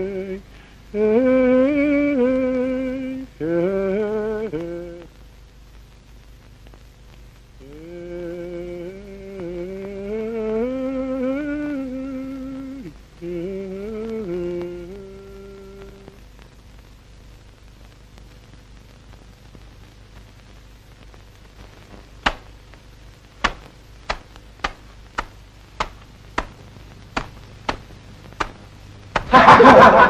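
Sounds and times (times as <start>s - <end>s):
boots crushing eggs: 23.4s - 29.4s
loud laughter: 29.3s - 30.0s.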